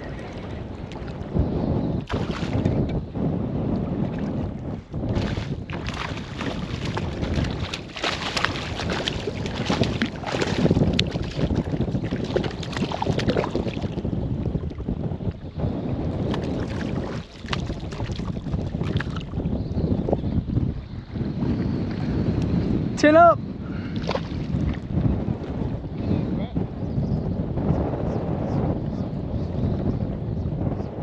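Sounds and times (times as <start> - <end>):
wind buffeting microphone: 0.0 - 31.0
fish thrashing in water: 2.0 - 2.8, 5.1 - 14.7, 16.2 - 19.5.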